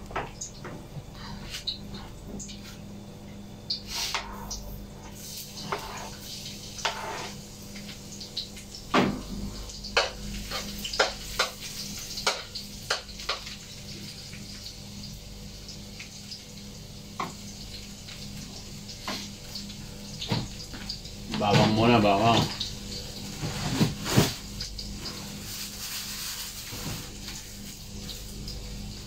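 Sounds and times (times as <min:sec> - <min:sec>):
metal spatula scraping in a wok: 0:06.9 - 0:07.4.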